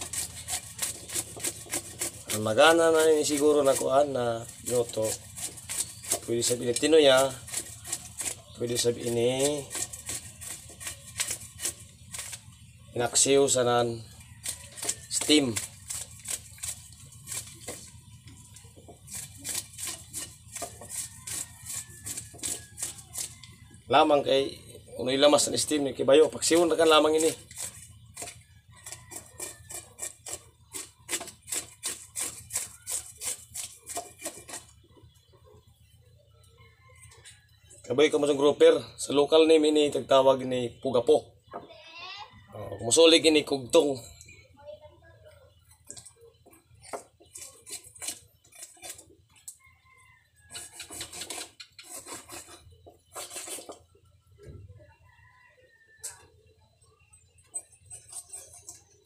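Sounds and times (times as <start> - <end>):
knife scraping fish scales: 0.0 - 12.5, 14.4 - 23.4, 26.4 - 34.8, 46.8 - 49.5, 50.5 - 53.9, 57.4 - 59.0.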